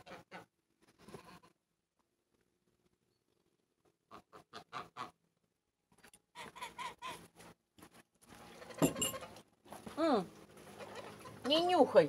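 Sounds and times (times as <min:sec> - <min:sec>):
poultry calling: 0:04.0 - 0:05.2, 0:06.3 - 0:07.3, 0:08.4 - 0:09.4, 0:10.6 - 0:11.6.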